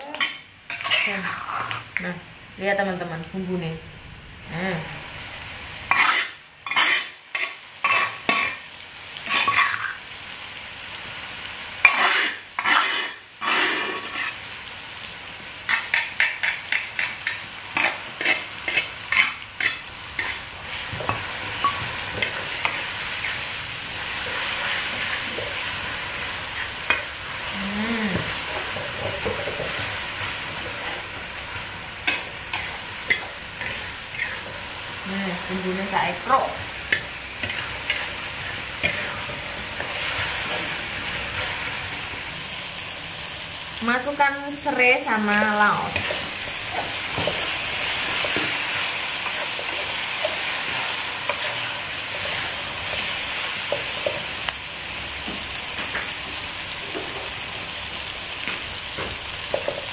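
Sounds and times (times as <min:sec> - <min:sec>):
paste sizzling in oil: 0:00.0 - 0:02.1, 0:04.4 - 0:59.9.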